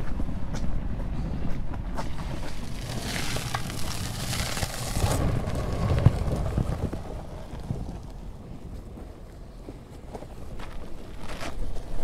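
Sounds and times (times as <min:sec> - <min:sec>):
wind rumbling on microphone: 0:00.0 - 0:12.0
kayak hull scraping on ground: 0:02.0 - 0:09.2.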